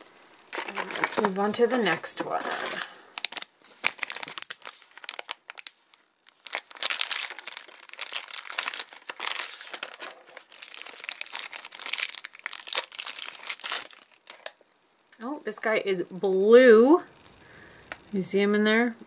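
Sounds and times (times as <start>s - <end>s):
plastic wrapper crinkling: 0.0s - 15.0s.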